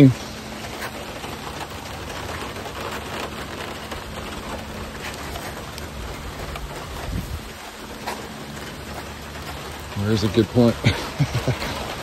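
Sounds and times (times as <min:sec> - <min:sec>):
rain falling: 0:00.0 - 0:12.0.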